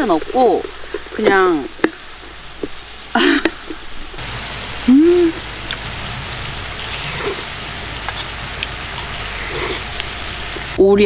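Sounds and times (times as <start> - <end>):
meat sizzling in a frying pan: 4.1 - 10.8
person humming: 4.8 - 5.5.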